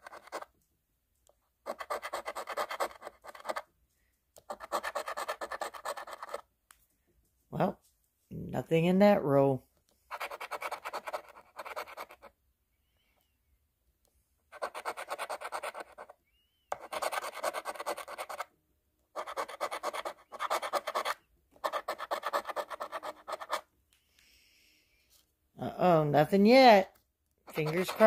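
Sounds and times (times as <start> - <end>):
coin scraping lottery ticket: 0.0 - 0.4, 4.5 - 6.4, 16.8 - 18.4, 19.2 - 23.6, 27.5 - 28.0.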